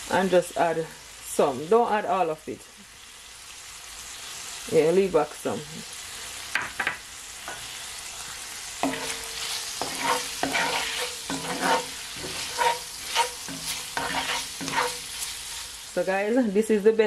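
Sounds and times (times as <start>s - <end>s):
food sizzling in a skillet: 0.0s - 17.0s
spoon scraping a pan: 7.4s - 15.8s.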